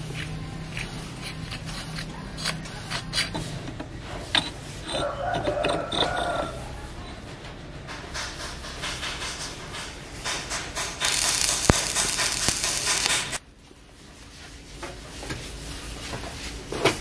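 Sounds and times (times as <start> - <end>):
welding hiss: 10.2 - 13.4.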